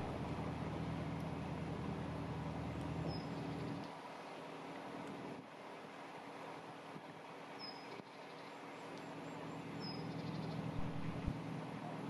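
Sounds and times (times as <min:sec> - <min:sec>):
boat engine humming: 0:00.0 - 0:03.8, 0:09.3 - 0:12.0.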